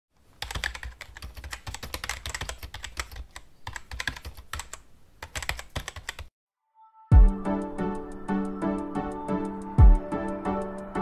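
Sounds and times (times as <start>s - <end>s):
keyboard typing clicks: 0.4s - 6.3s.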